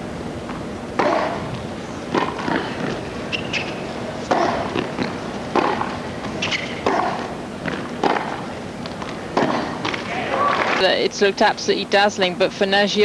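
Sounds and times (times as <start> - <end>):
tennis ball bounces: 0.5 - 10.0
tennis racquet hits: 1.0 - 10.7.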